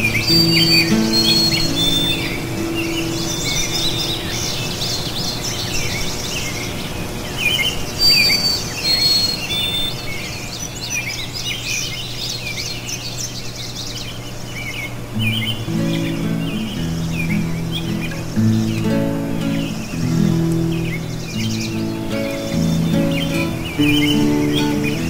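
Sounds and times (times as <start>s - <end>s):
faint instrumental music: 0.0s - 4.7s, 15.2s - 25.0s
small birds chirping: 0.0s - 25.0s.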